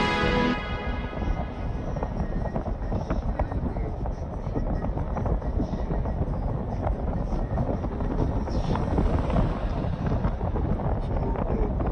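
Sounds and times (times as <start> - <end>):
car tyre and engine rumble: 0.0 - 11.9
wind buffeting microphone: 0.0 - 11.9
van passing by: 7.4 - 11.9.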